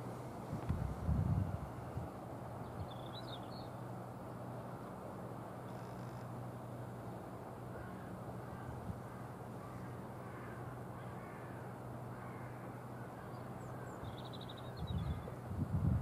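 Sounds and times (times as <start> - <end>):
wind buffeting microphone: 0.5 - 2.9, 14.8 - 16.0.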